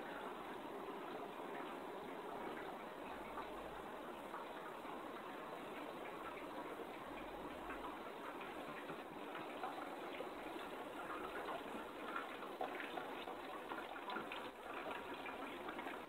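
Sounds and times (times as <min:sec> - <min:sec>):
water trickling and bubbling: 0:00.0 - 0:16.0.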